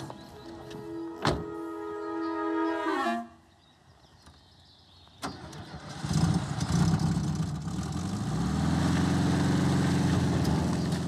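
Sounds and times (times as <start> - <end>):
engine starting and running: 5.1 - 11.0.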